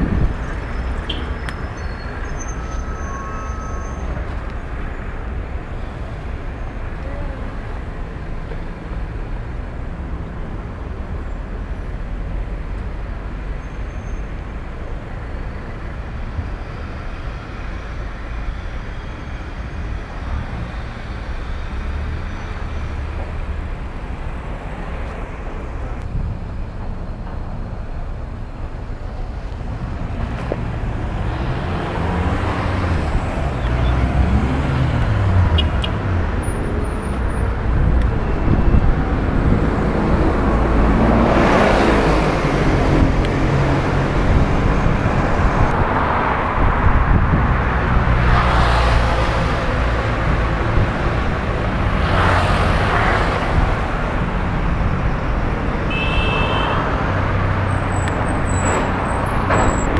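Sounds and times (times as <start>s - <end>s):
cars driving past: 29.6s - 59.9s.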